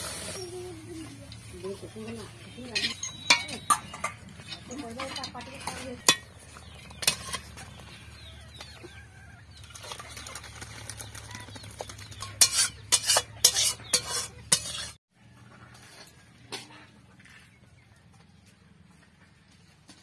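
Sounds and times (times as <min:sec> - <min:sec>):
metal spatula scraping metal pot: 0:02.0 - 0:08.3, 0:12.0 - 0:15.0.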